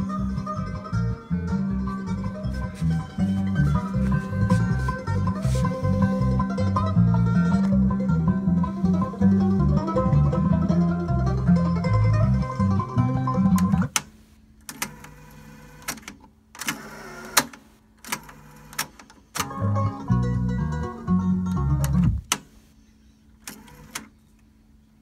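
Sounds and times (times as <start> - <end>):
music from cassette deck: 0.0 - 14.1, 14.7 - 22.5
tape mechanism motor running: 23.4 - 24.1.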